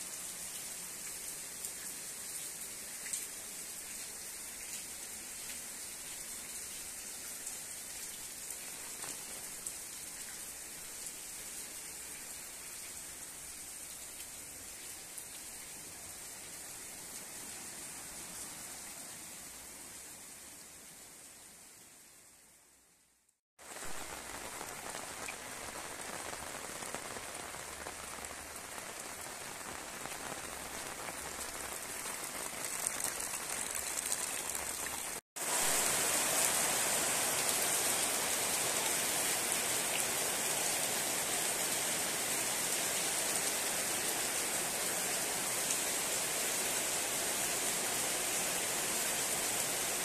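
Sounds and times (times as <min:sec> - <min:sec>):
heavy rain pouring: 0:23.6 - 0:50.0.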